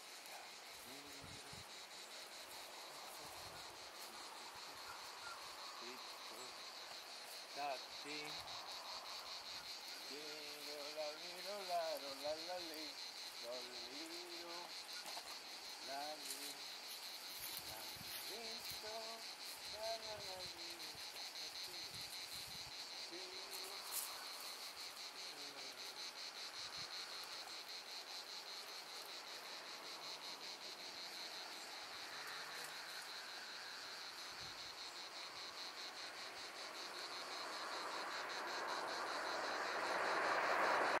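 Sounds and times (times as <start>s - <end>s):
crickets chirping: 0.0s - 41.0s
rushing noise: 37.4s - 41.0s.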